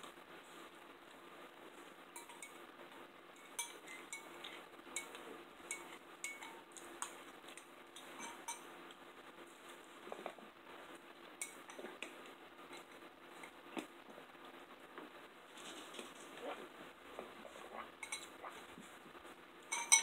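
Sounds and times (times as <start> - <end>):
spoons clinking against bowls: 2.2 - 2.6, 3.4 - 8.7, 11.4 - 11.8, 18.0 - 18.4, 19.7 - 20.0.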